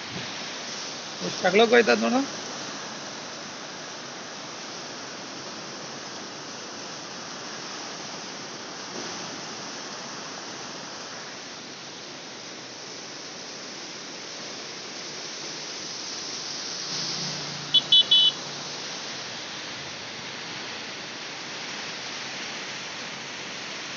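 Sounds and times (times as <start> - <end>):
floodwater rushing: 0.0 - 23.9
short high-pitched beeps: 17.8 - 18.4.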